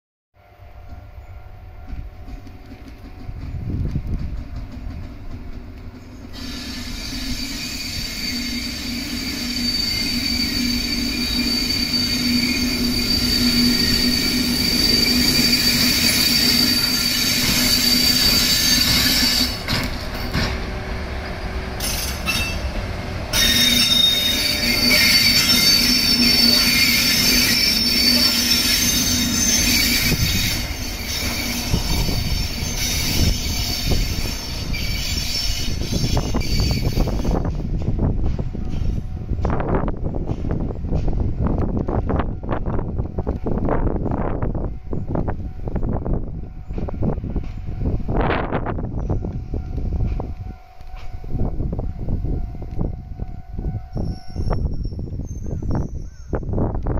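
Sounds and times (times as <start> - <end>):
electric locomotive motor hum: 0.4 - 55.2
high wheel squeal: 6.1 - 20.5, 21.2 - 37.6.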